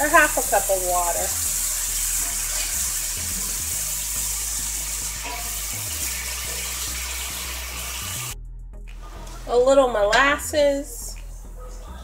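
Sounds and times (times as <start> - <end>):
sauce sizzling in a skillet: 0.0 - 8.4.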